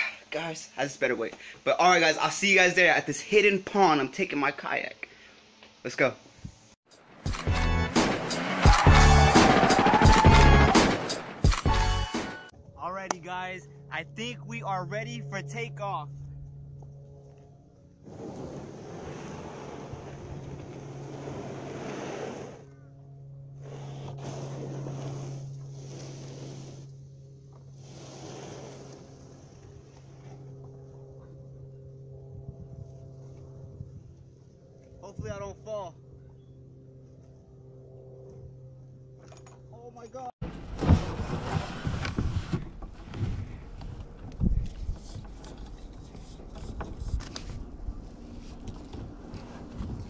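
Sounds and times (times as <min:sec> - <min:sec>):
steady low hum: 0:12.5 - 0:40.8
wind gusting on microphone: 0:18.0 - 0:22.6, 0:32.2 - 0:34.5, 0:40.6 - 0:50.0.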